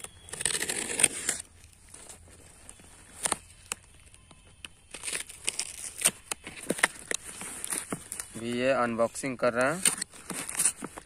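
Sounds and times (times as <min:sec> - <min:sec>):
knife cutting packing tape: 0:00.0 - 0:01.5, 0:09.5 - 0:11.0
tape and cardboard crackling: 0:00.0 - 0:11.0.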